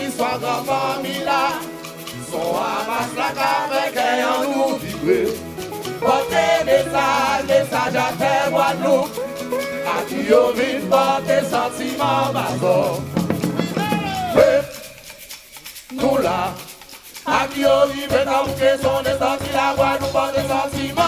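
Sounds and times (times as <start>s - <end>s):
hand drums: 0.0s - 21.0s
men singing into microphones: 0.0s - 21.0s
shaker: 0.0s - 21.0s
bass line: 12.5s - 14.7s.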